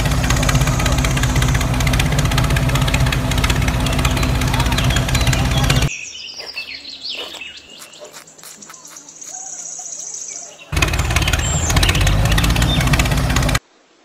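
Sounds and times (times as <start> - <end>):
tractor engine running: 0.0 - 5.9, 10.7 - 13.6
birds chirping: 0.0 - 13.6.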